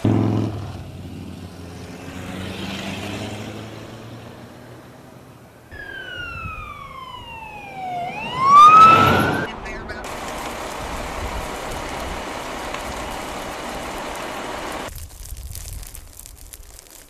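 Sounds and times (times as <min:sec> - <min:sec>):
emergency siren wailing: 0:05.7 - 0:09.6.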